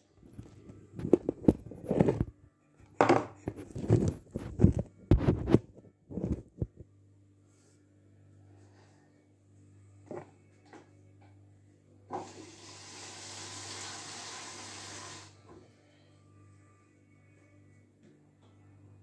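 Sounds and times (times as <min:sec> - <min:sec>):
low steady hum: 0:00.0 - 0:12.2, 0:15.3 - 0:19.0
rubbing on phone microphone: 0:00.7 - 0:02.3, 0:03.4 - 0:06.8.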